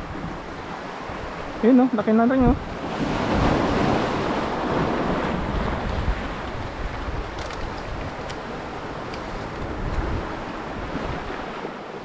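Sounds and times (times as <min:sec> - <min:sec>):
wind buffeting microphone: 0:02.3 - 0:12.0
small waves washing over rocks: 0:02.6 - 0:12.0.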